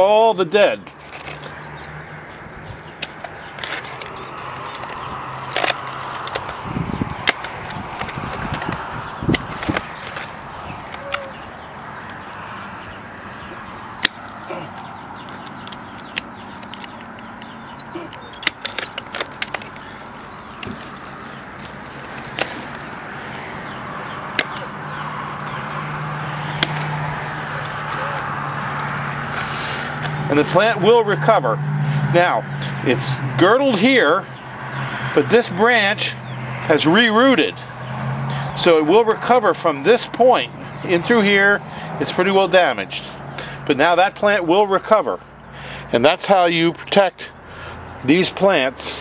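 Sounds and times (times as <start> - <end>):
dry twigs rustling: 0.8 - 30.3
handling noise: 0.8 - 30.7
pruner clicks: 2.9 - 11.4, 13.1 - 30.6.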